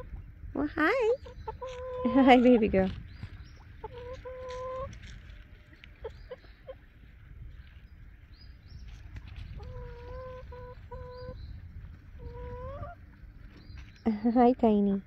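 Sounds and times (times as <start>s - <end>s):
wind rumble on microphone: 0.0s - 15.0s
chickens calling: 1.1s - 5.0s, 5.8s - 6.9s, 9.4s - 13.9s.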